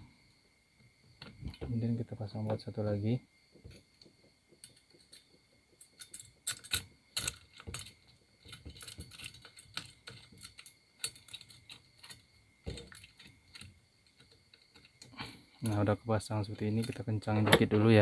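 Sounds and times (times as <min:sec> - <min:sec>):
small metal clicks and taps: 0:03.5 - 0:15.8, 0:16.6 - 0:17.7.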